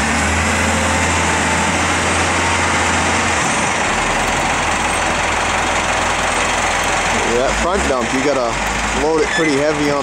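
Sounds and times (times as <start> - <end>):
diesel engine under load: 0.0 - 10.0.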